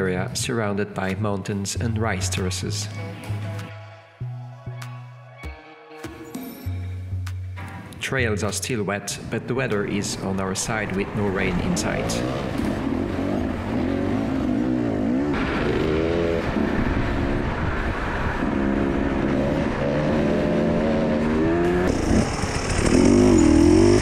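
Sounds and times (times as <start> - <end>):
dirt bike engine revving: 11.3 - 17.6, 18.3 - 24.0.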